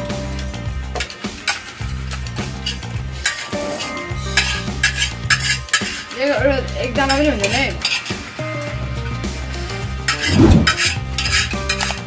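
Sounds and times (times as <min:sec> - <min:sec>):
background music: 0:00.0 - 0:12.0
cutlery clinking on steel plates: 0:01.0 - 0:06.2, 0:07.0 - 0:08.4, 0:10.1 - 0:12.0.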